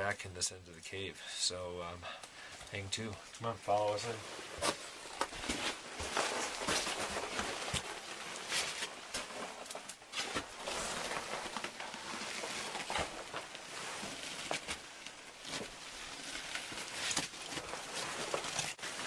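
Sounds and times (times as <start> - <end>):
jackets rustling: 3.3 - 19.0
feet scuffing and crunching: 3.7 - 14.8.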